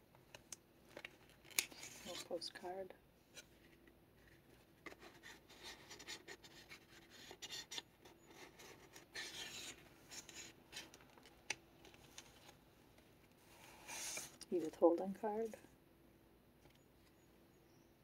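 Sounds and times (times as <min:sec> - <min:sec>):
paper and card rustling: 0:00.3 - 0:02.7, 0:03.3 - 0:14.7
paper scraping: 0:04.2 - 0:11.0, 0:13.5 - 0:14.4.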